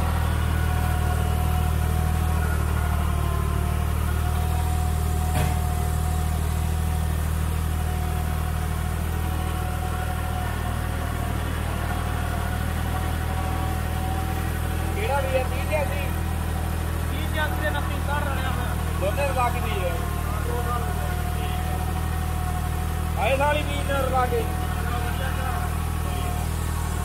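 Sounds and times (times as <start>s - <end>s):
tractor diesel engine running: 0.0s - 27.0s
brief knock: 5.3s - 5.7s.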